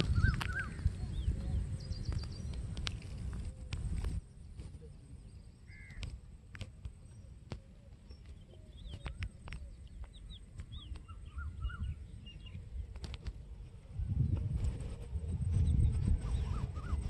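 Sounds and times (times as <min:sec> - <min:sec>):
birds chirping: 0:00.0 - 0:17.0
sharp clicks: 0:02.0 - 0:04.2
low rumble: 0:10.1 - 0:17.0.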